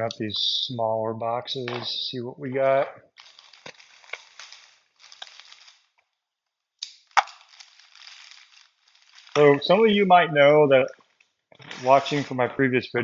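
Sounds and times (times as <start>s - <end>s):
plastic wrap snapping: 3.2s - 6.0s, 6.8s - 9.6s
plastic wrap crinkling: 3.2s - 6.2s, 6.8s - 10.0s, 11.0s - 12.4s
small clicks: 6.8s - 9.6s.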